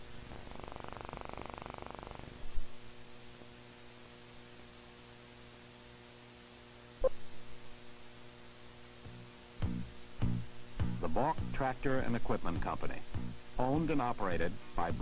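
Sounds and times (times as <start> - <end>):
mains hum and hiss: 0.0 - 15.0
rapid buzz: 0.4 - 2.3.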